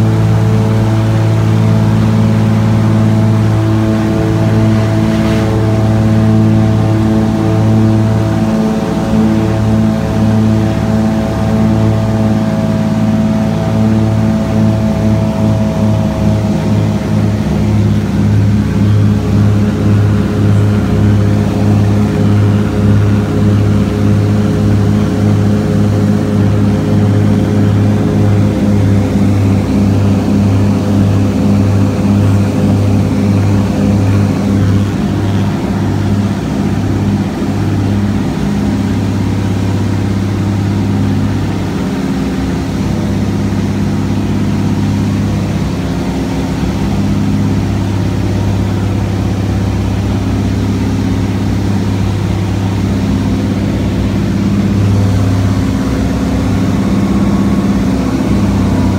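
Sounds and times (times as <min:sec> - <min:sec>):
plane engine droning: 0:00.0 - 0:58.9.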